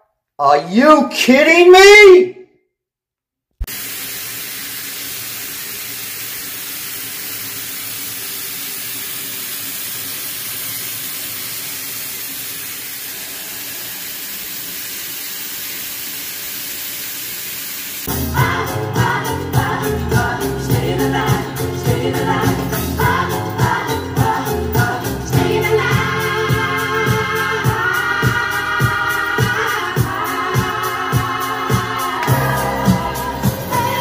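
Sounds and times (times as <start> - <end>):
tap water running into sink: 3.6 - 18.0
music with singing: 18.1 - 34.0.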